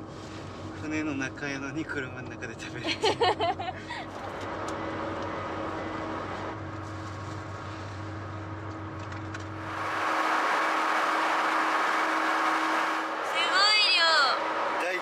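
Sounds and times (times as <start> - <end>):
ferry machinery drone: 3.8 - 15.0.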